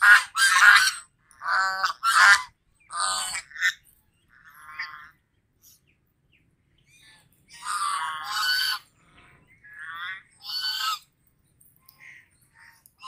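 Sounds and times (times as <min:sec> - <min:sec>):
geese honking: 0:00.0 - 0:03.8, 0:07.5 - 0:08.9, 0:09.7 - 0:11.1.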